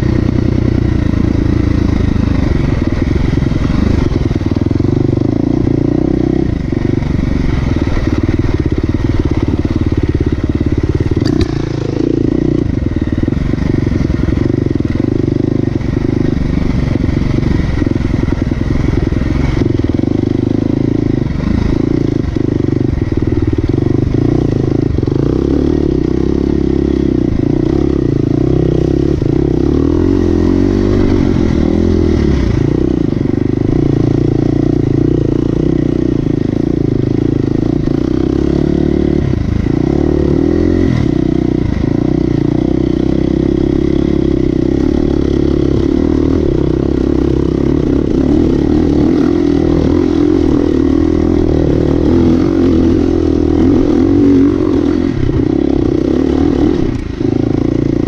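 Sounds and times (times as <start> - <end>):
off-road motorcycle engine: 0.0 - 58.0.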